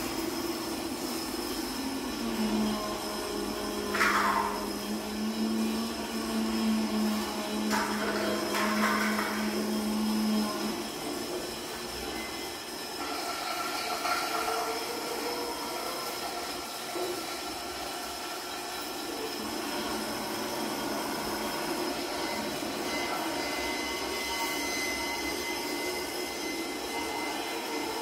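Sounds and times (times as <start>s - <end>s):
faint high steady tones: 18.9s - 28.0s.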